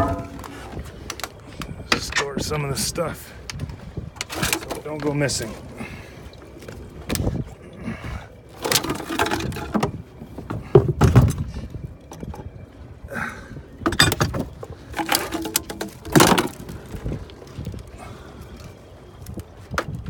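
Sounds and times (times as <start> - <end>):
knocks and clatters of fittings: 0.0 - 0.7, 13.8 - 16.6
rustling and scraping: 0.0 - 1.4, 8.6 - 11.5, 13.9 - 17.8.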